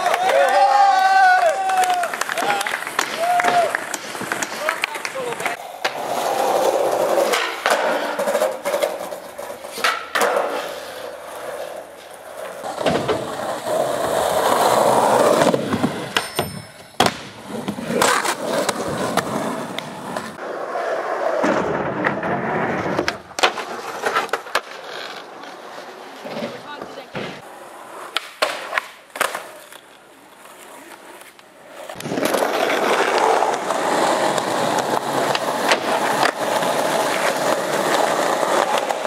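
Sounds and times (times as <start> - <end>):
skateboard clacking on ground: 0.0 - 20.5, 21.3 - 39.0
skateboard wheels rolling: 0.0 - 39.0.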